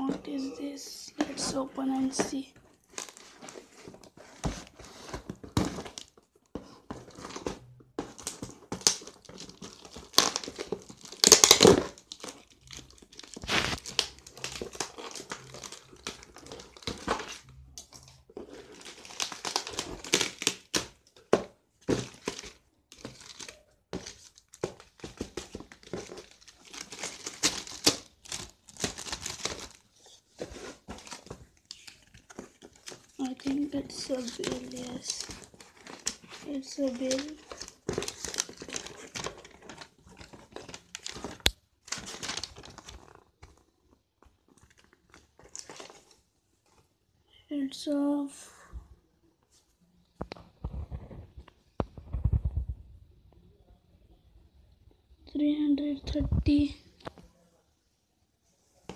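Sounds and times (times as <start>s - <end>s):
plastic bag crinkling and tearing: 7.1s - 20.9s, 21.9s - 43.6s.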